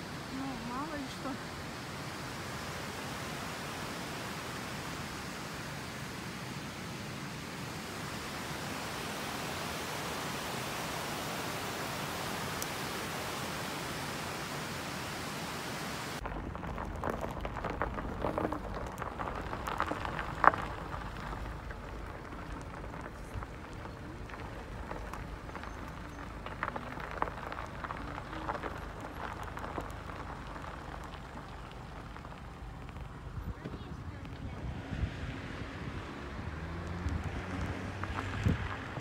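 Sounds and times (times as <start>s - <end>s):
stream running over rocks: 0.0s - 39.0s
water rushing along canal: 0.0s - 39.0s
scattered crackles: 16.2s - 39.0s.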